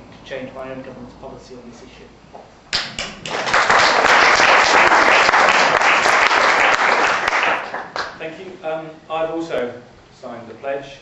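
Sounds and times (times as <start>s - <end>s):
audience applauding: 2.8s - 8.2s.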